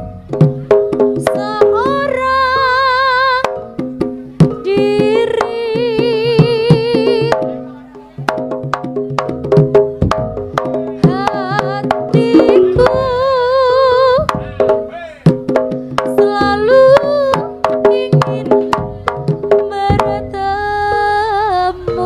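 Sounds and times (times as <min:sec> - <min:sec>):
hand drum strokes: 0:00.0 - 0:21.0
high wavering melody: 0:10.7 - 0:14.9, 0:16.2 - 0:22.0
ringing metallophone tones: 0:12.2 - 0:13.5, 0:20.7 - 0:22.0.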